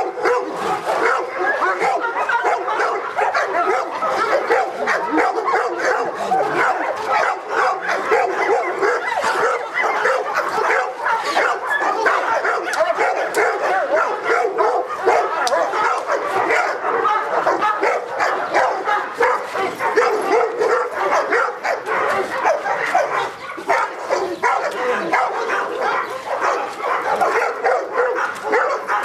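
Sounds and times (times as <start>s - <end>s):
dog barking rapidly: 0.0s - 29.0s.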